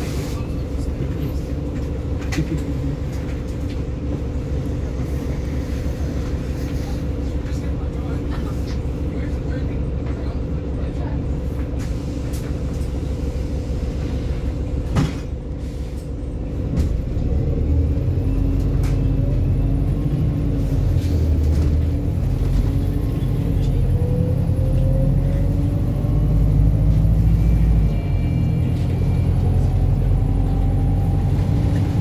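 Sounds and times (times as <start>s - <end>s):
bus diesel engine rumbling: 0.0s - 32.0s
rising engine whine: 21.2s - 32.0s.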